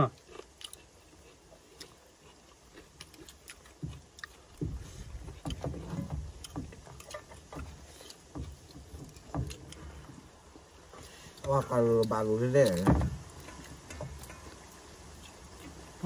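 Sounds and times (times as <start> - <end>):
low thumps and rumbles: 3.8 - 10.8.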